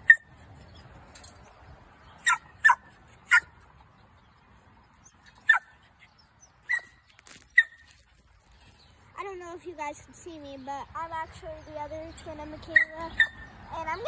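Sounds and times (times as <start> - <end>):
small dog yipping: 0.0 - 1.0, 2.2 - 3.5, 5.3 - 8.0, 12.7 - 13.4.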